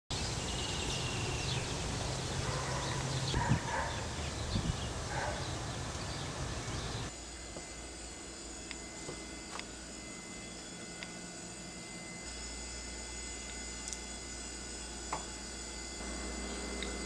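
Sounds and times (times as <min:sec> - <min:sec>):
bird chirps: 0:00.1 - 0:07.1
steady low hum: 0:00.1 - 0:17.0.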